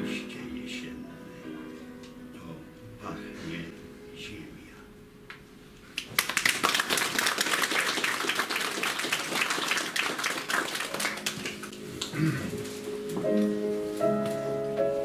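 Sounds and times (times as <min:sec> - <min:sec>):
small audience applauding: 0:05.9 - 0:12.5.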